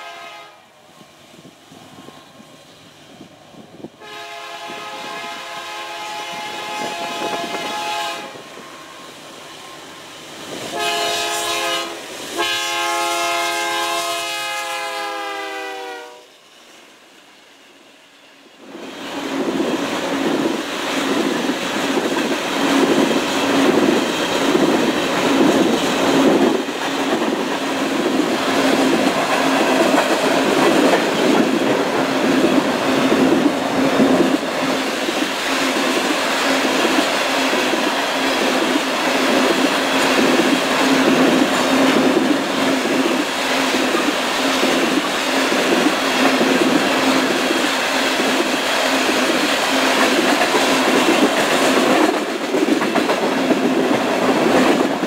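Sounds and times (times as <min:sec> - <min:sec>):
steady train hum: 0:00.0 - 0:55.0
train wheels clicking over rail joints: 0:18.1 - 0:55.0.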